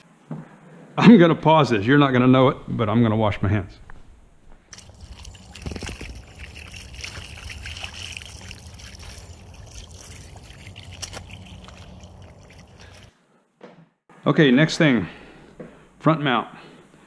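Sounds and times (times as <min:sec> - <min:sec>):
dog wading through water: 0:04.7 - 0:13.1.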